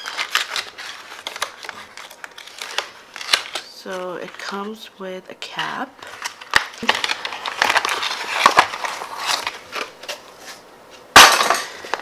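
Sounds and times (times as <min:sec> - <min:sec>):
plastic pouch crinkling: 0:00.0 - 0:04.5, 0:06.0 - 0:09.9.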